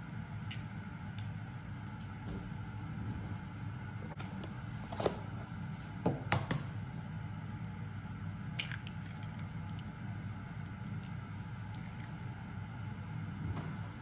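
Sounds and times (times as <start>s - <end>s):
steady low hum: 0.0s - 14.0s
eggshell cracking: 8.5s - 9.9s.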